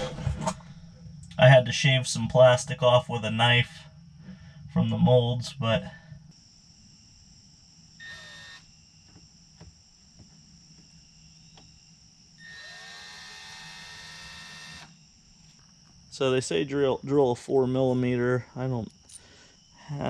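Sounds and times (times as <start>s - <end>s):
cordless drill motor: 8.0s - 9.2s, 12.4s - 15.0s.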